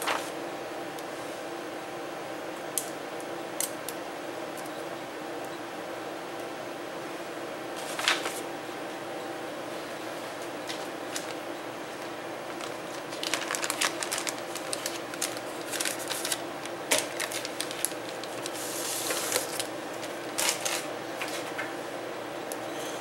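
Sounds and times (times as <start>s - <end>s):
steady background hum: 0.0s - 23.0s
plastic bag crinkling: 12.5s - 21.5s.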